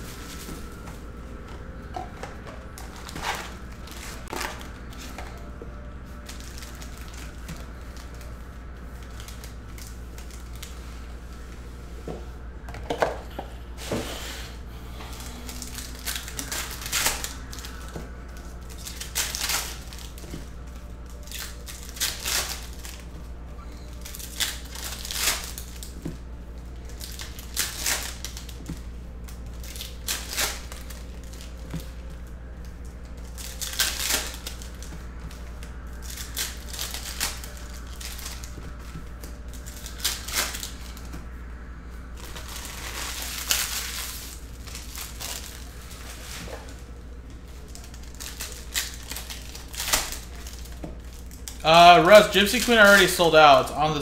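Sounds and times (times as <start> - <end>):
plastic wrappers crinkling: 0.0 - 11.7, 15.0 - 41.2, 41.8 - 54.0
steady low hum: 0.0 - 54.0
cards rustling: 42.0 - 54.0.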